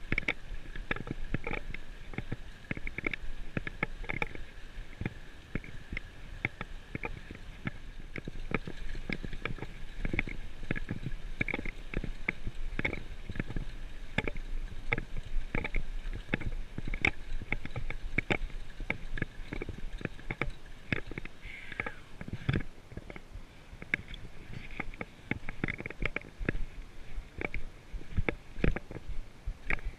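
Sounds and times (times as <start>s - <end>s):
bike knocks and rattles: 0.0s - 21.4s, 23.8s - 29.9s
wind and ground rumble: 0.0s - 29.9s.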